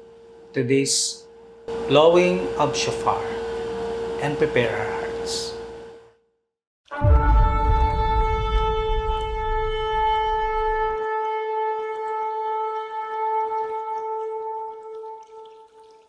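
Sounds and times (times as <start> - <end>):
shofar long held note: 6.9 - 16.0
low rumble: 7.0 - 11.0.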